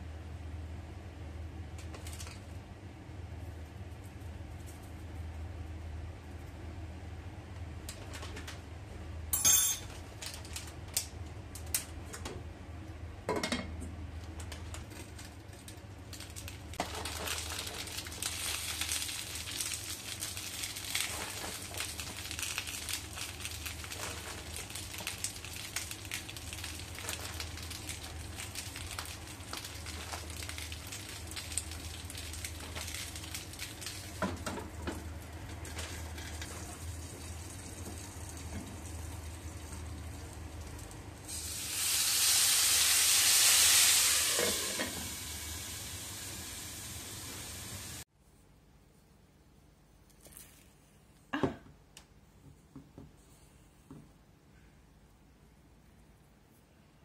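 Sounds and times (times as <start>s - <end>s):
utensils clinking against pan: 9.4s - 9.9s
food sizzling in a frying pan: 16.7s - 48.0s.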